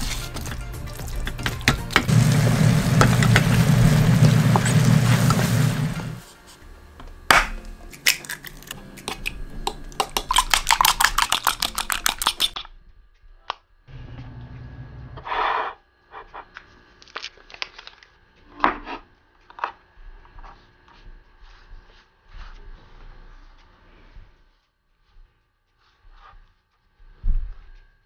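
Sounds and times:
fork beating eggs in bowl: 0:00.0 - 0:02.1, 0:07.9 - 0:12.6.

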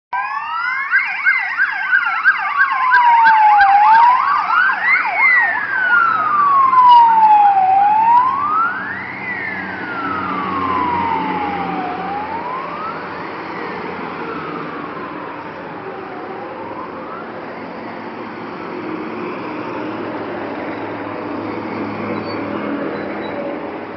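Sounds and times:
fast yelping siren: 0:00.2 - 0:18.2
wailing siren: 0:00.2 - 0:22.7
heavy truck engines rumbling: 0:03.1 - 0:23.9.

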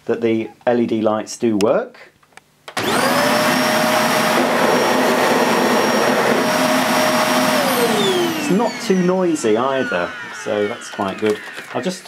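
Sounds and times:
vacuum cleaner motor whining: 0:02.7 - 0:12.0
vacuum cleaner airflow: 0:02.8 - 0:12.0.

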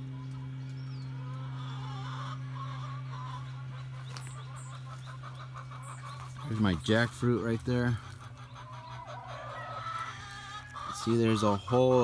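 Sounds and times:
poultry clucking and calling: 0:00.0 - 0:12.0
steady low hum: 0:00.0 - 0:12.0.

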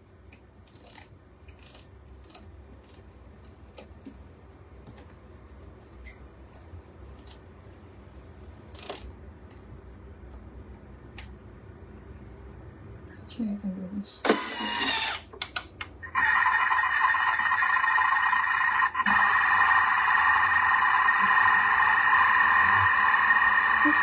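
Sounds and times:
low steady hum: 0:00.0 - 0:16.2.

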